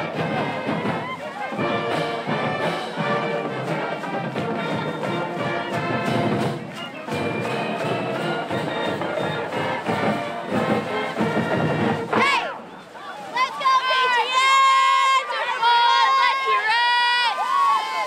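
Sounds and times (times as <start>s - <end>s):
steady drumbeat: 0.0s - 12.6s
marching band playing: 0.0s - 12.7s.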